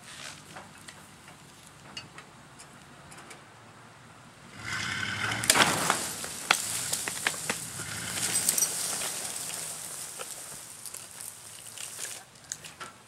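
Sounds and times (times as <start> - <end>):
low truck engine drone: 3.5 - 11.8
sharp cracks: 4.6 - 13.0
roots snapping and soil crunching: 5.0 - 13.0.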